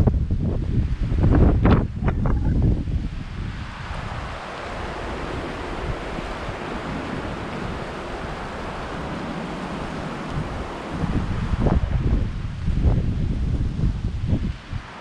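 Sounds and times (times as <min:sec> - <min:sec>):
river rushing over rocks: 0:03.2 - 0:13.0.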